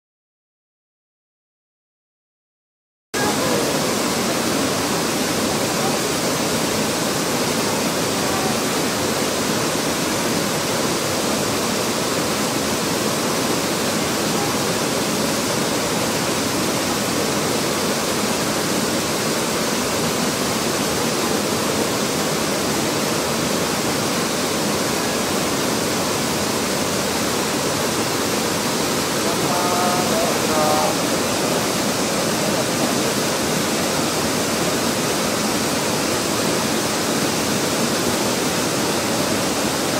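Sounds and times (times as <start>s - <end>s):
waterfall and stream rushing: 3.2s - 39.9s.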